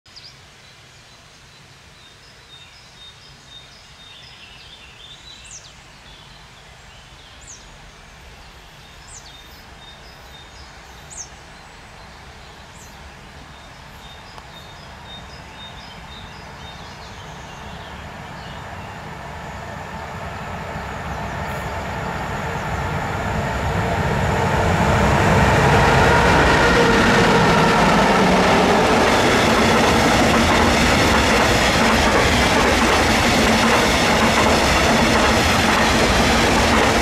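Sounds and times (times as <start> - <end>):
distant freight train rumble: 9.6 - 37.0.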